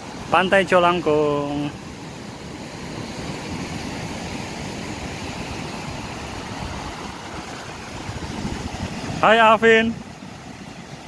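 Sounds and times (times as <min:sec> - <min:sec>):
surf breaking on beach: 0:02.4 - 0:11.0.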